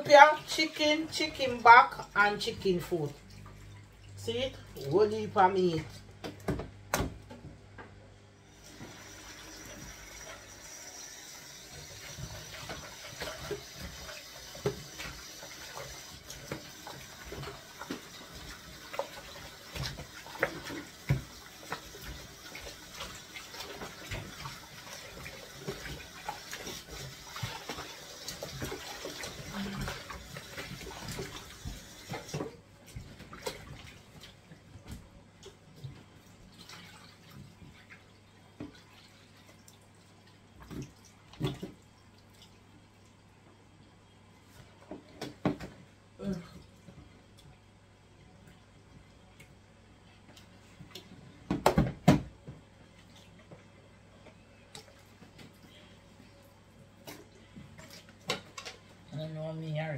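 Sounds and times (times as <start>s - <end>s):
tap running into a sink: 11.7s - 24.6s
knocks and clatter in sink: 45.0s - 45.8s, 51.4s - 52.6s.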